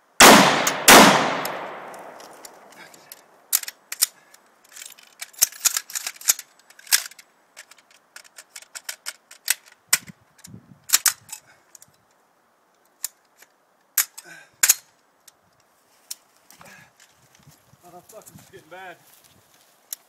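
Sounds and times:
rifle action metallic clicks: 0:00.2 - 0:11.9.

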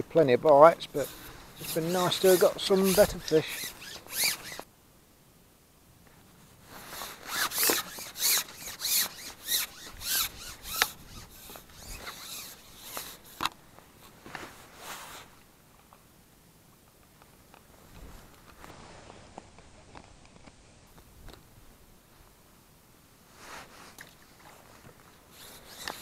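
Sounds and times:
fishing pole rasping: 0:00.8 - 0:04.7, 0:06.8 - 0:13.6, 0:25.3 - 0:26.0.

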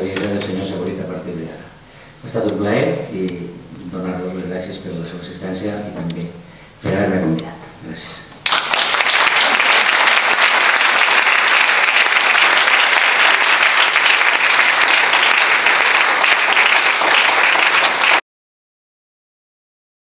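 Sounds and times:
audience applause: 0:08.4 - 0:18.2.

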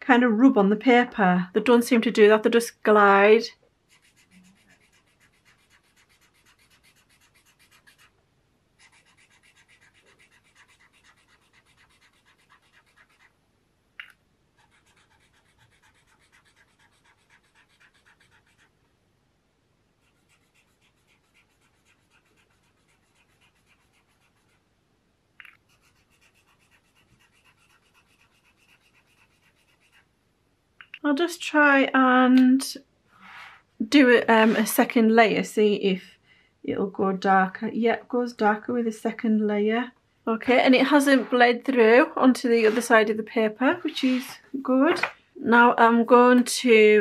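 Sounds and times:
brush pen scratching on paper: 0:03.9 - 0:08.2, 0:08.8 - 0:13.4, 0:14.6 - 0:18.8, 0:20.0 - 0:24.6, 0:25.5 - 0:30.1, 0:34.3 - 0:34.9, 0:40.5 - 0:41.5, 0:42.6 - 0:43.0, 0:43.7 - 0:45.1.

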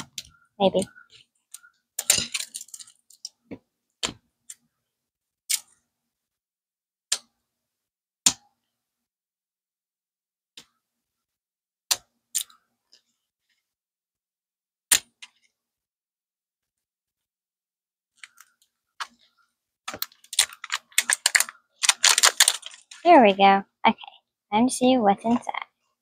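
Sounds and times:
paper wrapping crackling: 0:20.0 - 0:23.1.

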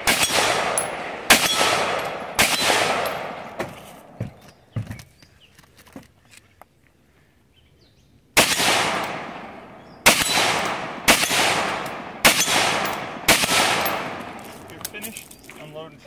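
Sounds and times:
rifle shots echoing: 0:00.0 - 0:04.2, 0:08.4 - 0:14.9.

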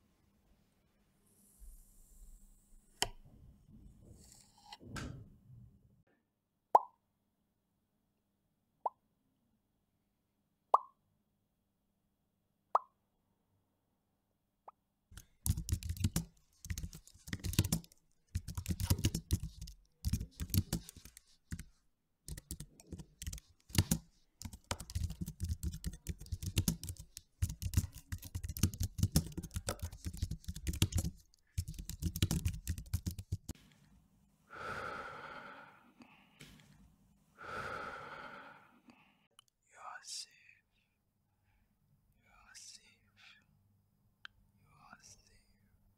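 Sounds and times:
fast typing on computer keyboard: 0:15.2 - 0:21.7, 0:22.3 - 0:33.6.

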